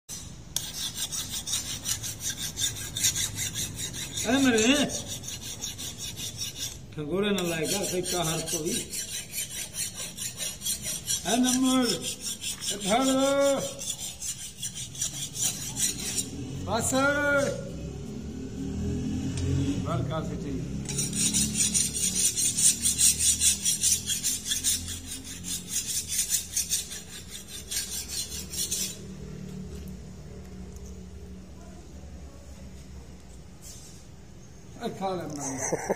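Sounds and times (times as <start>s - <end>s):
hand file rasping: 0.1s - 16.5s, 20.8s - 29.1s.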